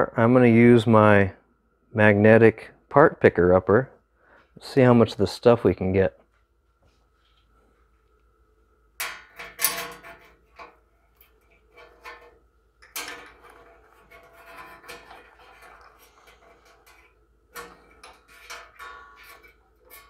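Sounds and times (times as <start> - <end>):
metal tool scraping sheet metal: 9.0 - 20.0.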